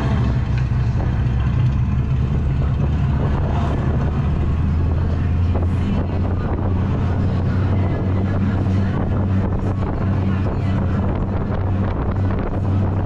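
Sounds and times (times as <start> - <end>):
go-kart motor hum: 0.0 - 13.0
wind noise on microphone: 0.0 - 13.0.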